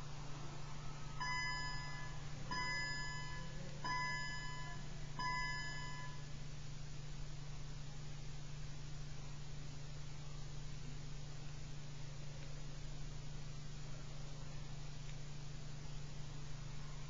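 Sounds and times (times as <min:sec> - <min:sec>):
steady low hum: 0:00.0 - 0:17.0
chime ringing: 0:01.2 - 0:06.2.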